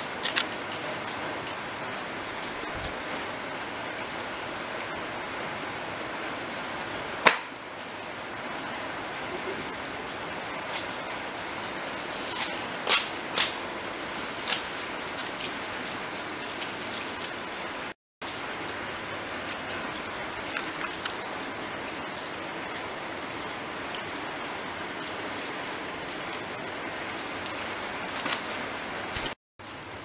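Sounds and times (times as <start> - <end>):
rain falling: 0.0 - 30.0.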